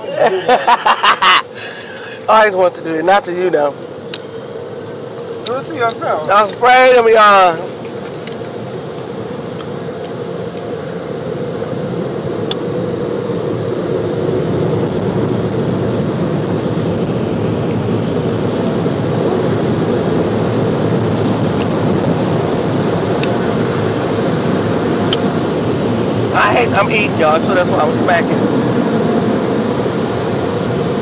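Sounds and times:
car wash rushing noise: 15.2 - 31.0.

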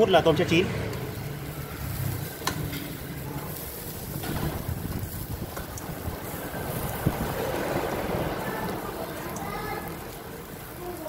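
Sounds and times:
skewers clicking on grill rack: 2.1 - 9.6
wind noise on microphone: 3.9 - 8.3.

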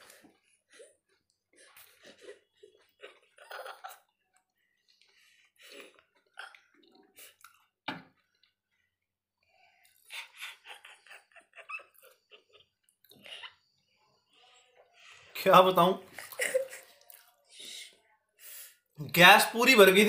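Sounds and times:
chewing and crunching: 0.0 - 8.8, 16.2 - 17.5.

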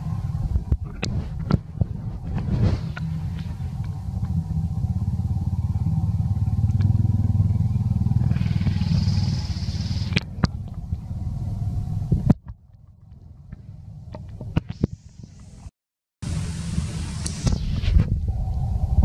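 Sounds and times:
engine running: 0.0 - 19.0
high hiss: 8.3 - 10.2, 14.7 - 19.0.

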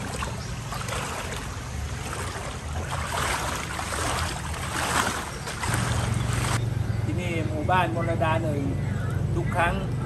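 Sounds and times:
person wading through water: 0.0 - 6.6.

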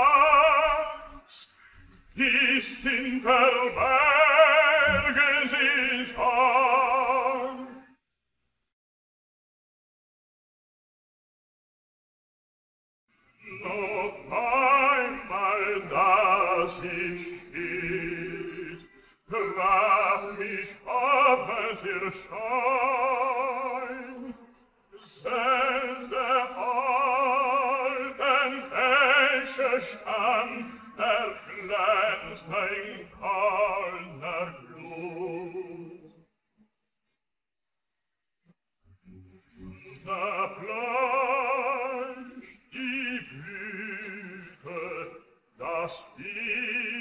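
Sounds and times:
tenor singing unaccompanied: 0.0 - 1.2, 2.2 - 7.8, 13.4 - 36.2, 39.6 - 47.0.

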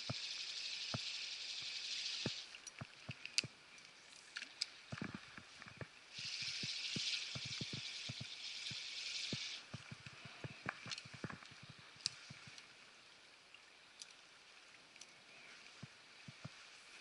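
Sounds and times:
raindrops ticking on camera housing: 0.0 - 12.8
high steady hiss: 0.0 - 17.0.

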